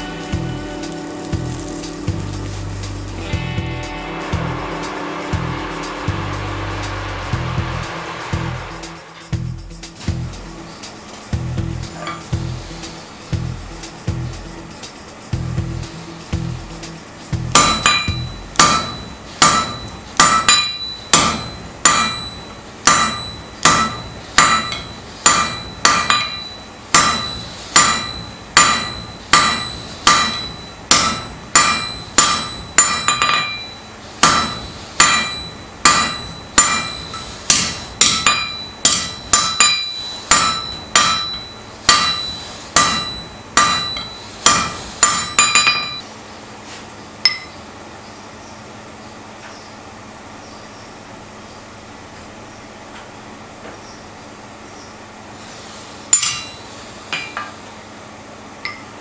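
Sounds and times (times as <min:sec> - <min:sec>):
hammer striking steel on anvil: 0:11.8 - 0:12.5, 0:17.4 - 0:46.1, 0:47.2 - 0:47.6, 0:56.1 - 0:57.6, 0:58.6 - 0:58.9.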